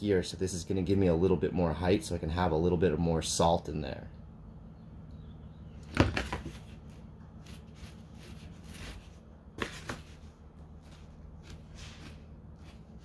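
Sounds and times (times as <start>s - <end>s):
steady low hum: 0.0s - 13.0s
fingers scuffing clay: 6.4s - 13.0s.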